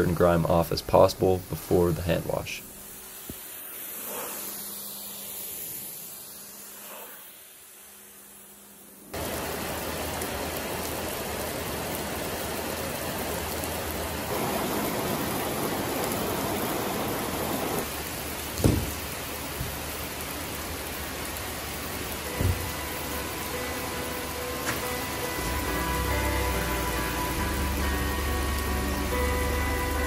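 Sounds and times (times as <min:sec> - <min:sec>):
heavy rain on pavement: 0:09.1 - 0:30.0.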